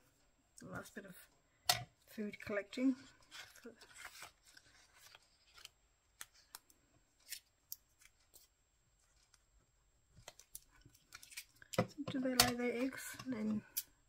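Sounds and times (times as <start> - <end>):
paper rustling: 3.1 - 9.4.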